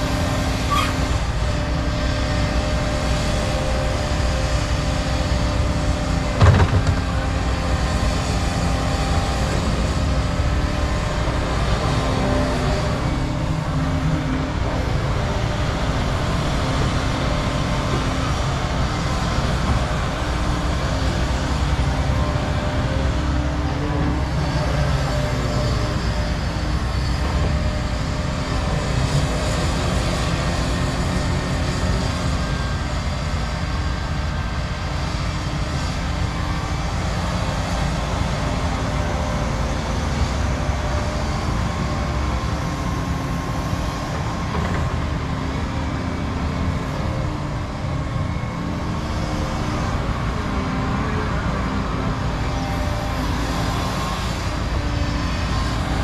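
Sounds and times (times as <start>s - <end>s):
diesel excavator engine drone: 0.0s - 56.0s
excavator scooping soil: 5.0s - 25.9s.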